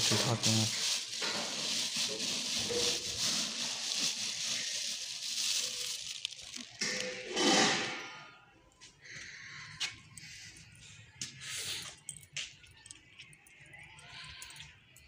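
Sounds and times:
seeds pattering on plastic: 0:00.0 - 0:06.9
plastic bag crinkling: 0:00.0 - 0:07.2.

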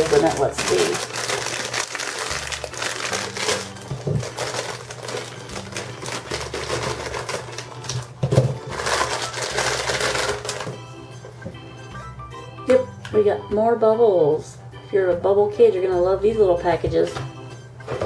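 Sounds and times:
plastic packaging crinkling: 0:00.0 - 0:10.8.

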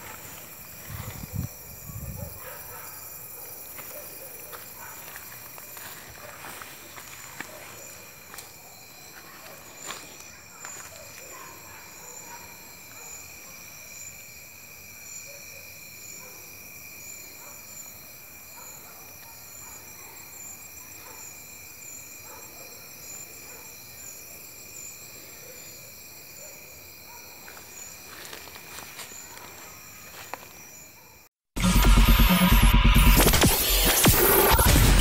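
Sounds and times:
crickets and cicadas trilling: 0:00.0 - 0:31.3.

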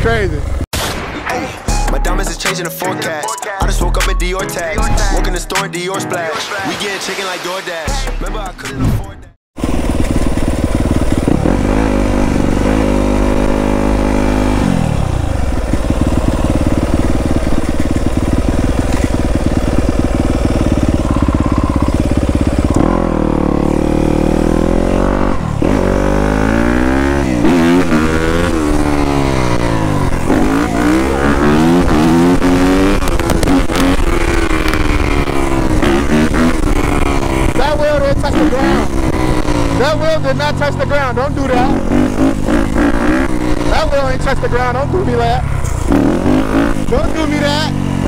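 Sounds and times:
dirt bike engine revving: 0:09.6 - 0:48.0.

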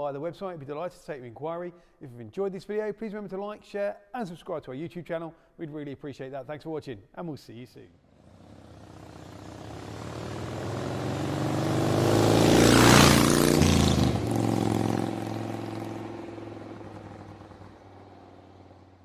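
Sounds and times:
vehicle engine passing by: 0:08.1 - 0:19.0.

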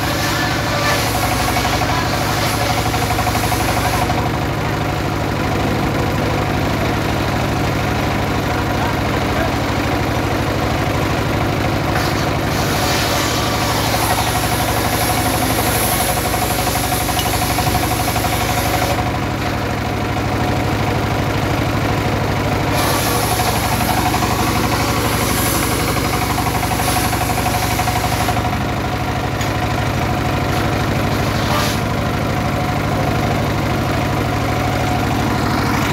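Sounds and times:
saw blade cutting wood: 0:00.0 - 0:04.3, 0:11.9 - 0:19.0, 0:22.7 - 0:28.5, 0:30.5 - 0:31.9
diesel engine running: 0:00.0 - 0:35.9.

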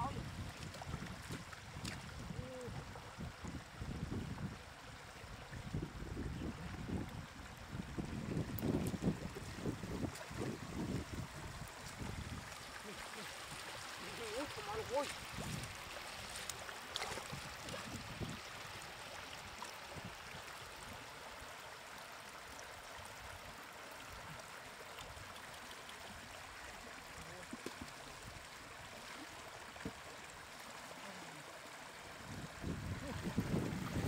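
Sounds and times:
water flowing: 0:00.0 - 0:34.0
faint knocks or splashes: 0:14.2 - 0:18.0.

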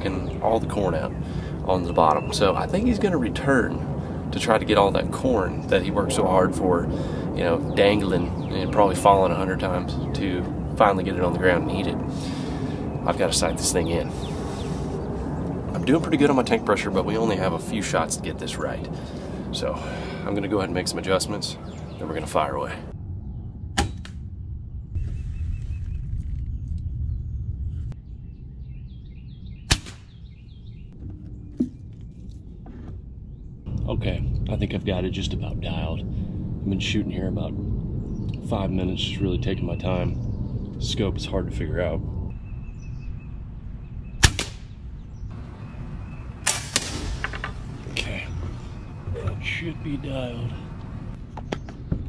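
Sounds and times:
small birds chirping: 0:00.0 - 0:23.5, 0:25.0 - 0:36.0, 0:36.8 - 0:52.0
air rifle shot: 0:23.8 - 0:24.2, 0:29.7 - 0:30.2, 0:44.2 - 0:44.8, 0:46.4 - 0:47.7.

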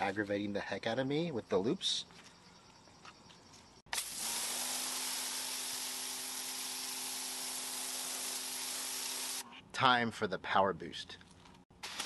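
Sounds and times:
pressure washer water jet hissing: 0:03.9 - 0:09.4
pump motor humming: 0:03.9 - 0:09.4.

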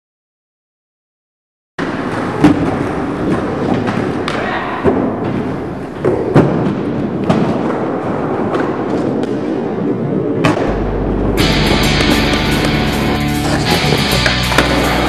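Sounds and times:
skateboard wheels rolling: 0:01.8 - 0:04.4, 0:11.2 - 0:15.0
skateboard clacks and thuds: 0:01.8 - 0:09.5, 0:11.6 - 0:15.0.

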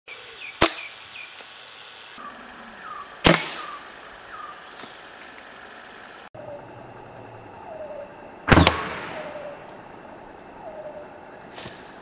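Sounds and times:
air rifle shot: 0:03.2 - 0:03.8, 0:08.5 - 0:09.5.

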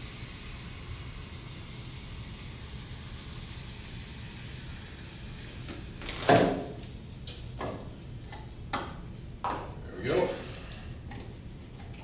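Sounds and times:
liquid nitrogen hissing: 0:00.0 - 0:07.4.

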